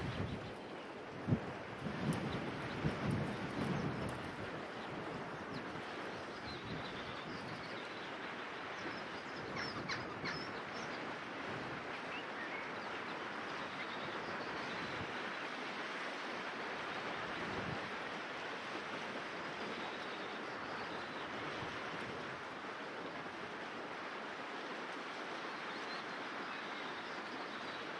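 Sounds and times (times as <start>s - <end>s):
river rushing over stones: 10.2s - 27.9s.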